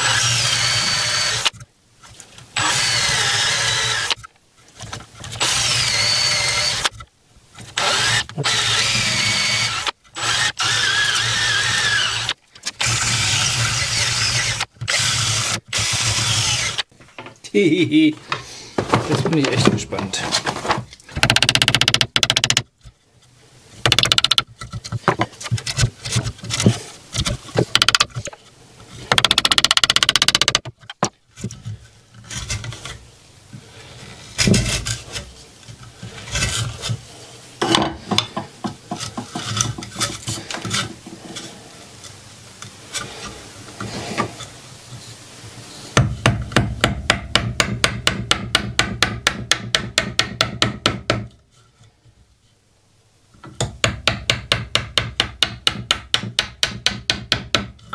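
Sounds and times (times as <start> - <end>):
chisel scraping wood: 37.6 - 41.6
chisel knocking into wood: 53.8 - 57.7.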